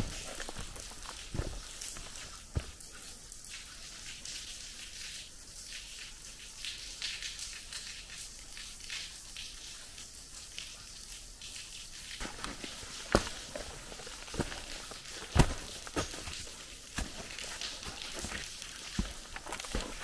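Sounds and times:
footstep on dirt: 0.0s - 2.8s, 12.2s - 20.0s
water dripping: 0.0s - 20.0s.

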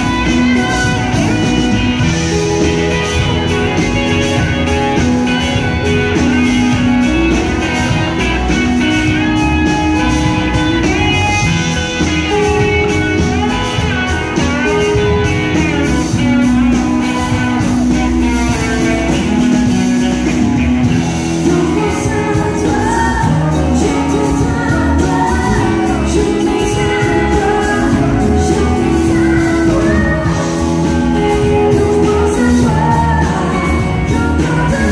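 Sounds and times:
country-rock band playing: 0.0s - 34.9s
person singing: 20.9s - 34.9s.

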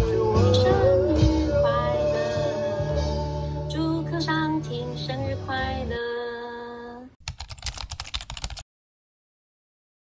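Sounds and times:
pop song with singing: 0.0s - 7.2s
rapid keyboard typing clicks: 7.2s - 8.6s.

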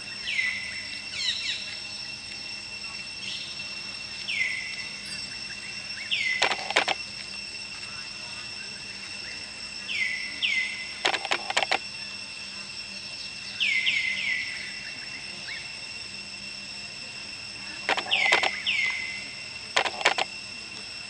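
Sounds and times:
insect drone: 0.0s - 21.0s
sharp clicks: 6.4s - 7.3s, 11.0s - 11.8s, 17.8s - 18.6s, 19.7s - 20.3s.

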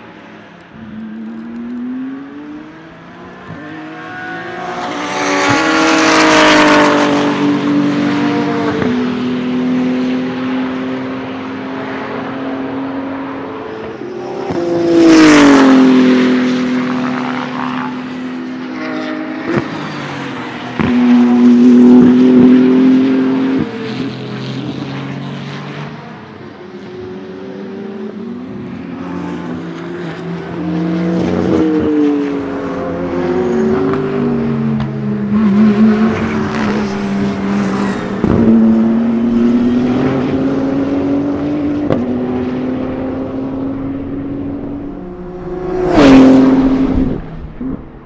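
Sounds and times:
race car accelerating and passing: 0.0s - 48.0s.

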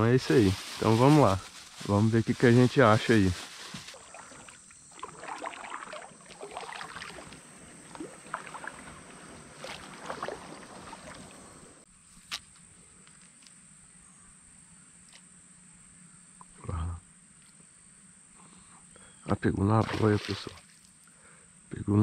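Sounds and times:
reeds scraping along kayak hull: 0.1s - 11.8s
water splashing: 3.0s - 11.8s, 19.8s - 20.6s.

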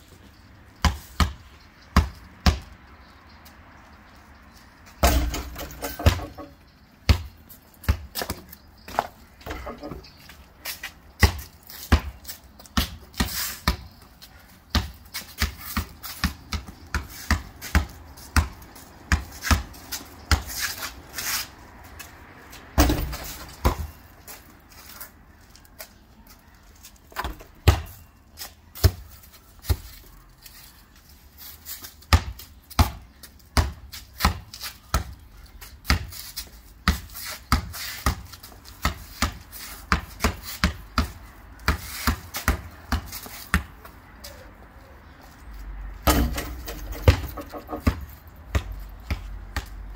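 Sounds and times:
basketball bouncing on concrete: 0.8s - 2.8s, 5.0s - 10.3s, 11.2s - 14.1s, 14.7s - 20.8s, 22.8s - 24.0s, 27.1s - 28.1s, 28.8s - 29.9s, 32.0s - 43.9s, 46.0s - 49.9s
heavy ball thump: 22.8s - 23.8s, 46.1s - 47.8s.

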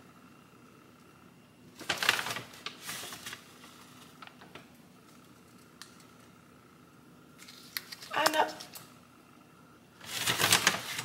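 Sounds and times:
paper bag rustling: 1.7s - 5.4s, 10.0s - 11.0s
plastic packet crinkling: 1.8s - 6.2s, 7.4s - 8.8s, 10.0s - 11.0s.

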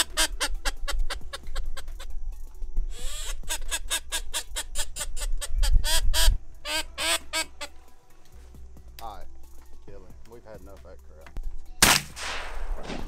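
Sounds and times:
duck call quacking: 0.0s - 2.1s, 2.9s - 7.8s
wind rumble on microphone: 5.0s - 6.4s.

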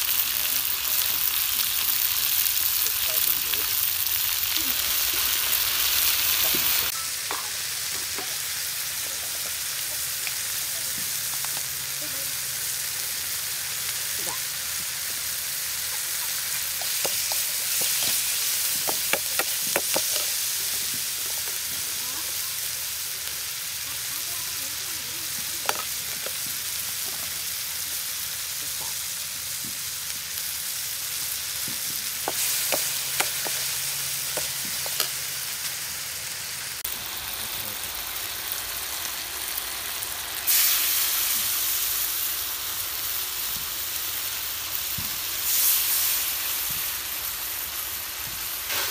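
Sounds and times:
food sizzling in wok: 0.0s - 48.9s
ladle clinking and scraping wok: 15.8s - 21.7s.

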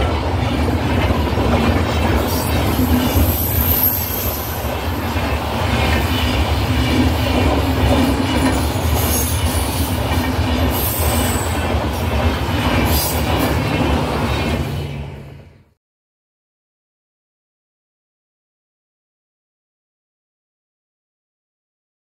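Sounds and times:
clickety-clack over rail joints: 0.0s - 15.2s
train wheels rumbling on rails: 0.0s - 15.7s
high-pitched wheel squeals: 2.4s - 4.7s.

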